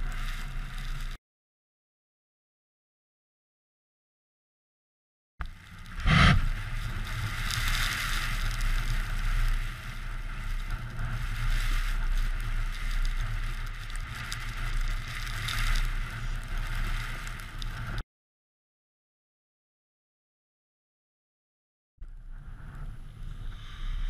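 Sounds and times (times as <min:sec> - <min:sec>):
wind buffeting microphone: 0:05.4 - 0:18.0.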